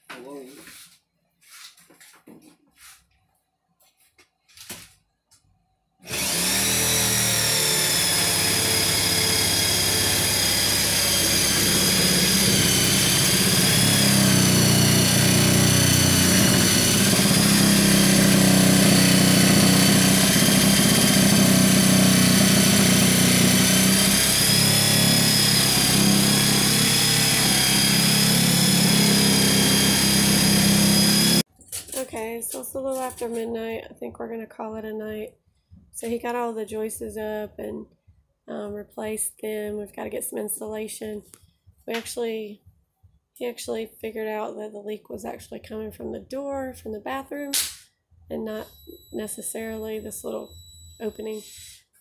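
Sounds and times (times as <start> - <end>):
power tool whining: 6.0 - 31.5, 48.5 - 51.9.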